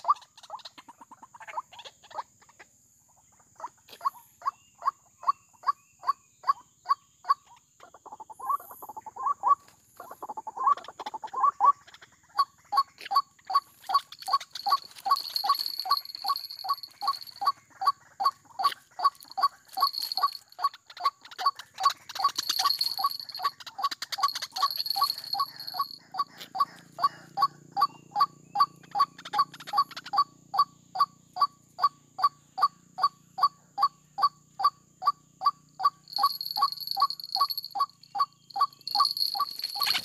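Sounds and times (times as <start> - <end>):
bird harsh calling: 8.2 - 32.3, 35.4 - 40.0.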